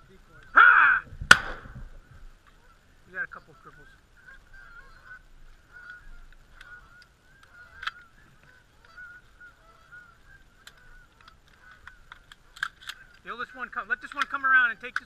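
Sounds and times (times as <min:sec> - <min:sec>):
geese honking and clucking: 0:01.7 - 0:15.0
sharp clicks: 0:05.8 - 0:08.1, 0:10.6 - 0:13.3, 0:14.0 - 0:15.0.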